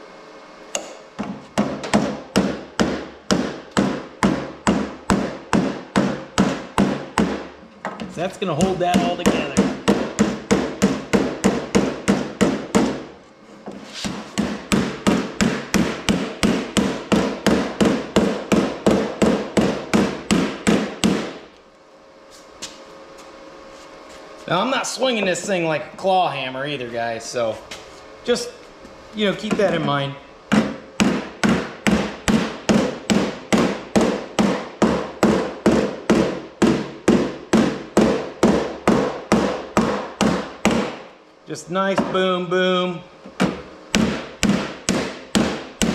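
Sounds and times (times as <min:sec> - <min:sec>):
hammer tapping on sheet steel: 0:08.5 - 0:13.0, 0:14.4 - 0:21.4, 0:30.5 - 0:41.0, 0:43.4 - 0:45.9.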